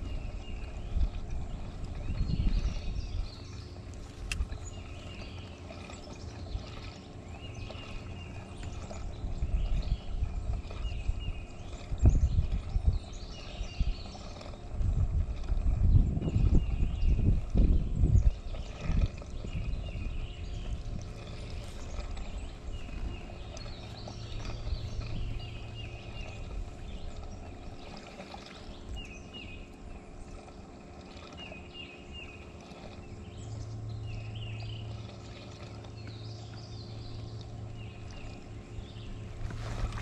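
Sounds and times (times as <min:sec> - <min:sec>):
steady low hum: 0:00.0 - 0:40.0
small birds chirping: 0:16.5 - 0:30.5.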